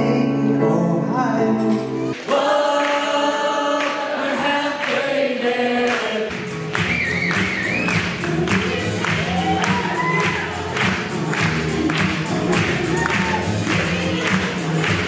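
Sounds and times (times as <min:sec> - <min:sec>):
man singing with electric keyboard: 0:00.0 - 0:06.3
music with long held sung notes: 0:00.0 - 0:15.0.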